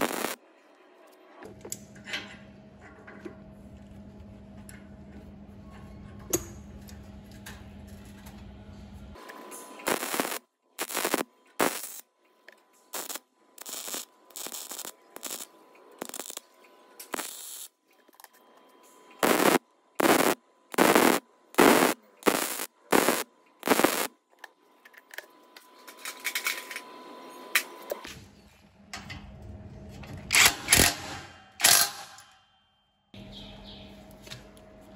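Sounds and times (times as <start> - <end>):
welder tack welds crackling: 0.0 - 0.4, 9.8 - 12.0, 12.9 - 17.8, 19.2 - 24.2.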